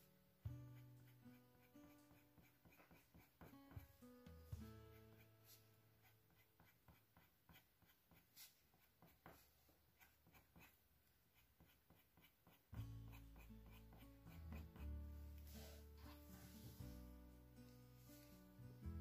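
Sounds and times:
soft background music: 0.0s - 8.2s, 12.4s - 19.0s
pencil scratching on paper: 0.7s - 4.0s, 4.6s - 16.9s.

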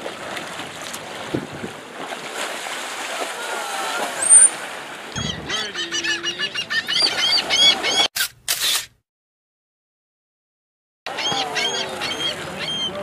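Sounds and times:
water splash: 0.0s - 5.8s
dolphins chirping: 4.2s - 4.6s, 5.2s - 8.1s, 11.1s - 13.0s
short bursts of noise: 8.2s - 9.0s.

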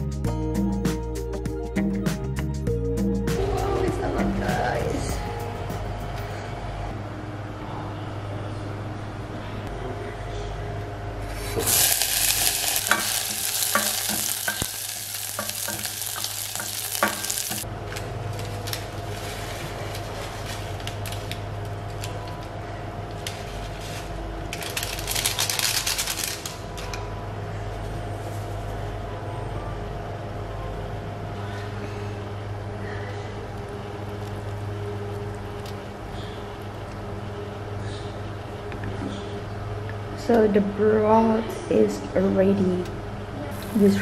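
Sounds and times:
steady low hum: 0.0s - 44.0s
loud hissing of hot broth: 11.3s - 17.6s, 43.5s - 44.0s.

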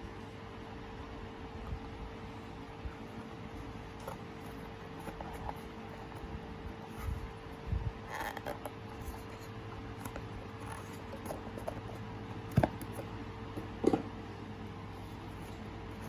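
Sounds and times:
cardboard scraping and rustling: 3.0s - 13.1s.

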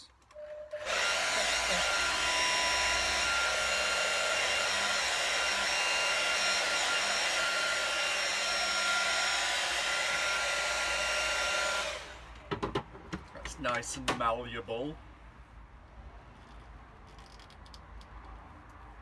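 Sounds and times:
hairdryer whining: 0.4s - 12.5s
hairdryer blowing air: 0.7s - 12.4s.

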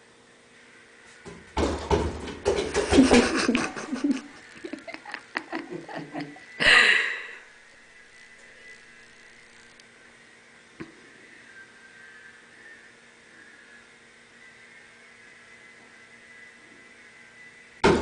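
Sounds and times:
cat thumping on closet doors: 1.3s - 3.8s
person laughing: 2.8s - 7.4s.

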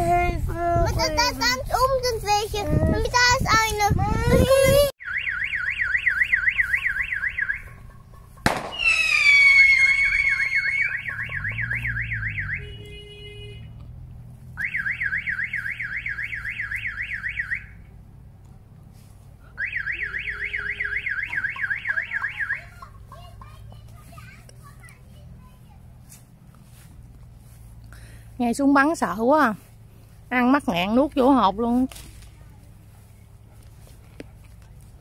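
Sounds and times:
warbling siren: 5.0s - 13.0s, 14.6s - 17.8s, 19.6s - 22.7s
sharp bang: 8.4s - 10.4s
falling shriek: 8.7s - 11.6s.

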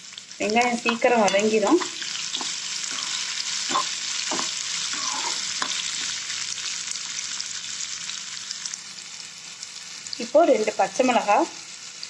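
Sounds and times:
food sizzling in hot oil: 0.0s - 12.0s
spoon scraping and knocking pan: 0.8s - 6.2s.

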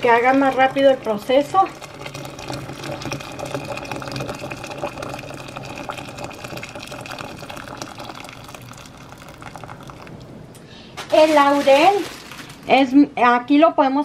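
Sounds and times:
water pouring into a metal pot: 0.0s - 10.2s.

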